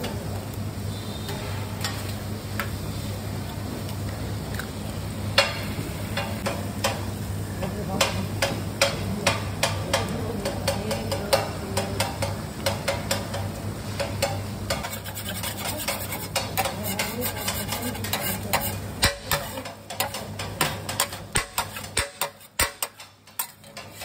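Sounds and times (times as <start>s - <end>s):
spatula scraping on griddle: 13.8s - 24.0s
eggs sizzling in fat: 14.0s - 24.0s.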